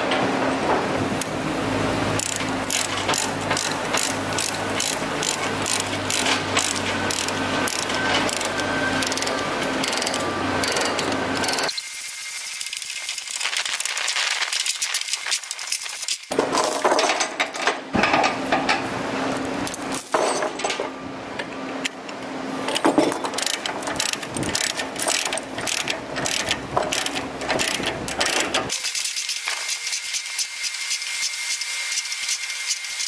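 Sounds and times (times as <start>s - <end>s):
chain links rattling: 2.2s - 10.9s, 16.3s - 17.8s, 19.3s - 21.0s, 22.8s - 28.5s
ratchet pawl clicking: 2.2s - 11.7s, 23.4s - 33.0s.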